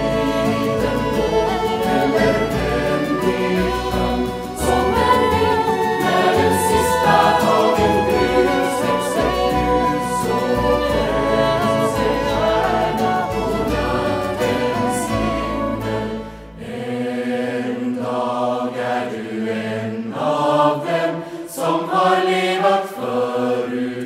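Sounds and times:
choir singing folk song: 0.0s - 24.0s.

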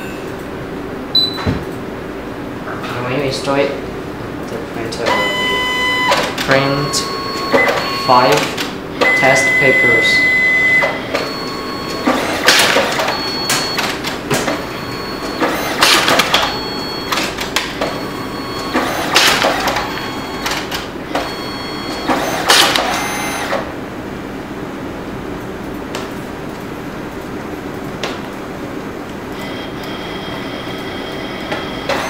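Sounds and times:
photo printer whirring and swishing: 10.7s - 23.7s, 29.4s - 32.0s.

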